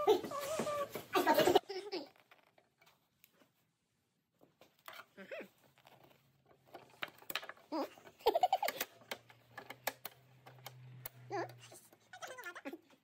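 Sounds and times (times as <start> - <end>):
sharp clicks and knocks: 8.3 - 12.1.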